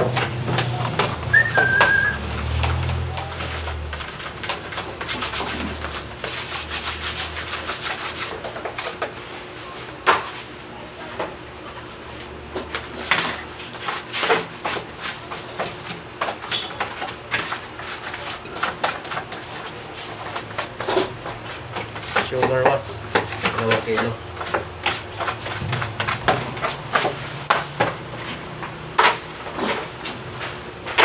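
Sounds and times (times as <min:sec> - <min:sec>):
flour scooping scrape: 0:03.2 - 0:08.9.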